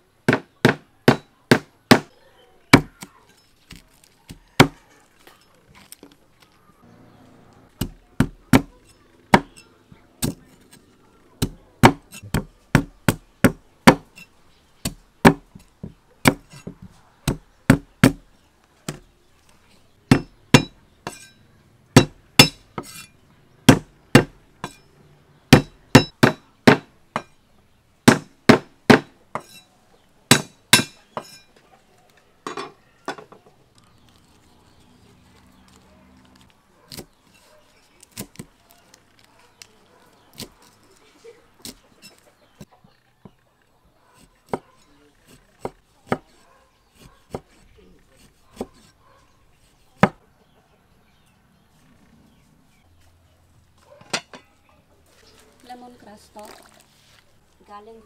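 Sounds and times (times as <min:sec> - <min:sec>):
cleaver chopping on wooden board: 0:00.3 - 0:02.1, 0:02.7 - 0:03.1, 0:03.7 - 0:04.8, 0:07.8 - 0:09.6, 0:10.2 - 0:10.4, 0:11.4 - 0:14.2, 0:14.8 - 0:18.2, 0:20.1 - 0:21.3, 0:22.0 - 0:23.0, 0:23.7 - 0:24.8, 0:25.5 - 0:27.3, 0:28.0 - 0:29.5, 0:30.3 - 0:31.4, 0:45.3 - 0:46.4, 0:47.0 - 0:47.6, 0:48.2 - 0:48.9, 0:50.0 - 0:50.2.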